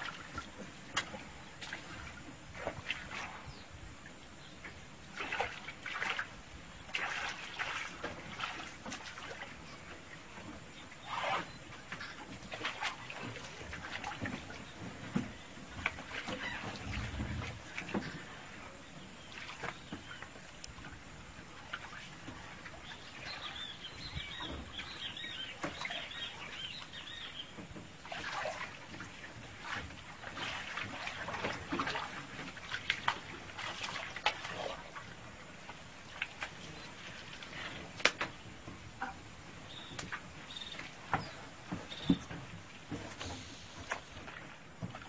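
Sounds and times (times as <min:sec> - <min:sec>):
muddy water splashing: 0:00.0 - 0:03.5, 0:05.0 - 0:20.7, 0:21.5 - 0:45.0
birds chirping: 0:14.3 - 0:21.0, 0:22.5 - 0:28.2, 0:36.5 - 0:44.3.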